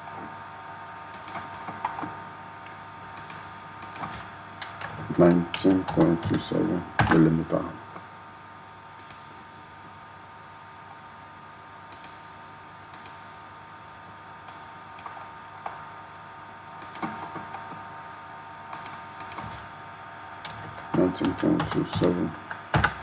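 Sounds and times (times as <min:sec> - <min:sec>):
faint steady hum: 0:00.0 - 0:23.0
computer mouse clicks: 0:01.1 - 0:02.1, 0:03.2 - 0:04.9, 0:09.0 - 0:09.3, 0:11.9 - 0:12.2, 0:12.9 - 0:13.2, 0:14.4 - 0:15.8, 0:16.8 - 0:17.8, 0:18.7 - 0:19.6.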